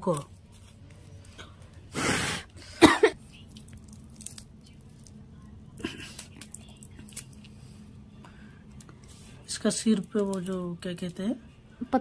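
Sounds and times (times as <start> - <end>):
puffs of breath blowing: 1.9 - 2.8
dried fish crackling: 3.4 - 5.2.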